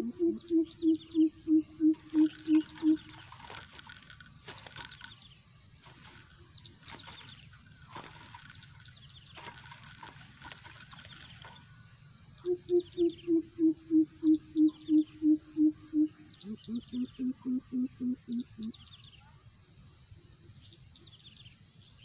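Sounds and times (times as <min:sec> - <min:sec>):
bird deep hooting call: 0:00.0 - 0:03.2, 0:12.4 - 0:18.8.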